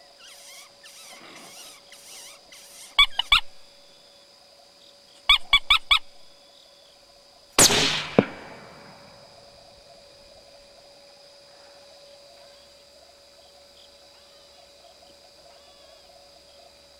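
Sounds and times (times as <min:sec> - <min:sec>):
short high yelping calls: 0:00.1 - 0:03.8, 0:05.3 - 0:06.3
sharp crack: 0:07.6 - 0:09.4
rifle shot with echo: 0:07.6 - 0:09.5.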